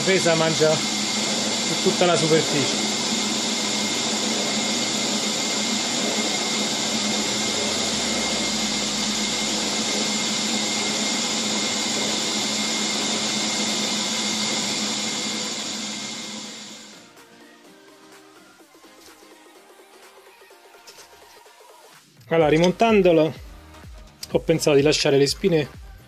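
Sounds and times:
milling machine whining: 0.0 - 17.1.

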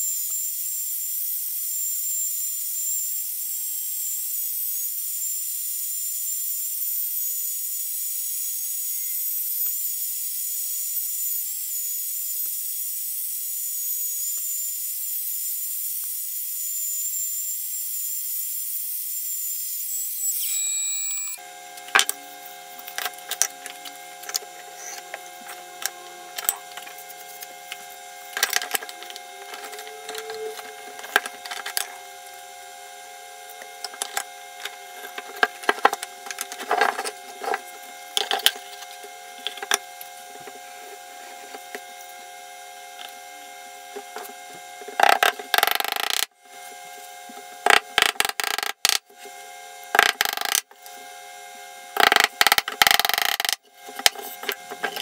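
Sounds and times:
steady hum: 20.4 - 48.4.

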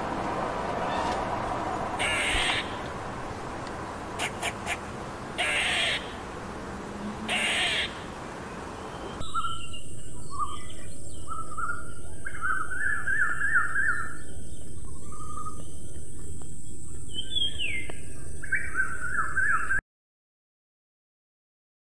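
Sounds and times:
birds singing: 2.0 - 6.3, 7.0 - 19.8
harsh calls: 7.0 - 8.1.

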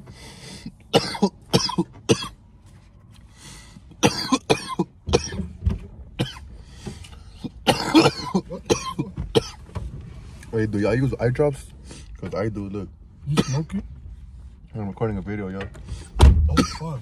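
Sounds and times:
man coughing: 0.9 - 2.3, 4.0 - 5.4, 7.4 - 9.6, 13.3 - 13.7, 16.5 - 17.0.

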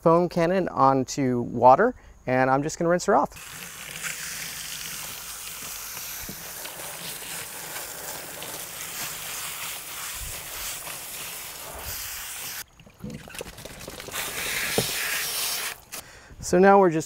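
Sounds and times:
water running off into tub: 3.4 - 15.9
water spraying from hose: 3.4 - 16.0.

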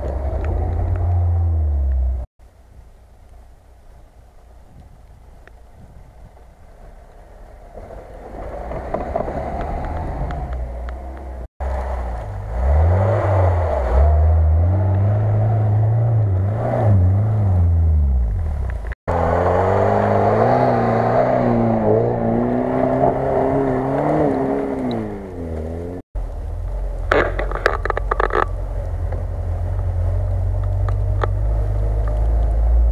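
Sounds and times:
off-road vehicle engine revving: 0.0 - 2.3, 7.8 - 26.0.

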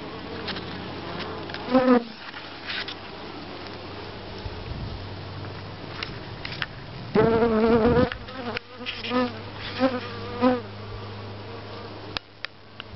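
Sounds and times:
bees buzzing past: 0.0 - 2.6, 7.0 - 12.2.

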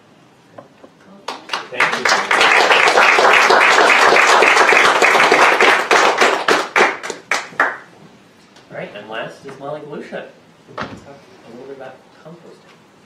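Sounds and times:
audience applauding: 1.3 - 7.9.

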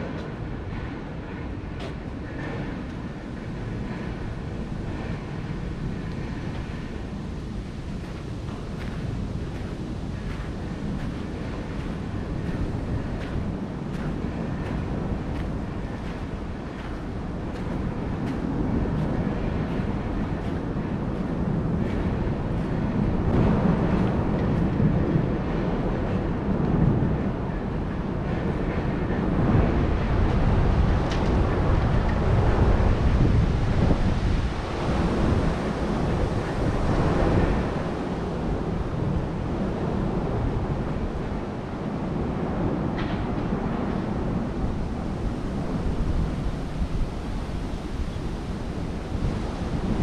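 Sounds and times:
rainy city background rush: 0.0 - 50.0
wind gusting against microphone: 0.0 - 50.0.

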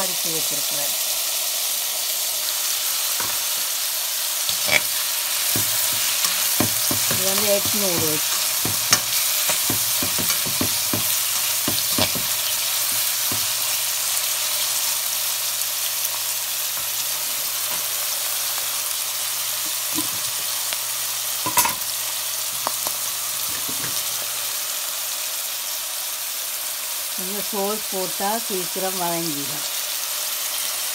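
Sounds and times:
onions sizzling in hot oil: 0.0 - 30.9
spatula scraping a pan: 4.5 - 13.8.

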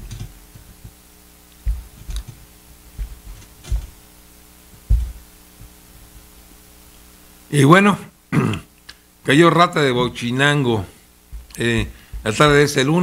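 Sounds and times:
low electrical hum: 0.0 - 13.0
soft thumps on a desk: 4.8 - 5.2.

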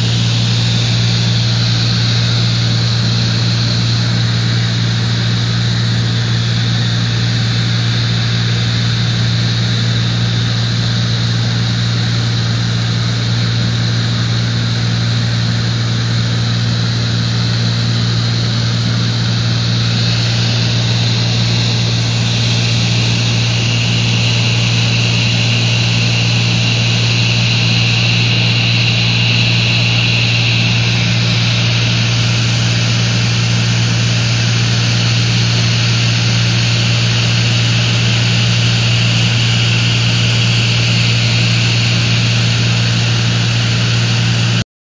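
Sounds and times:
propeller engine droning: 0.0 - 44.6
rushing hiss of airflow: 18.3 - 44.6.

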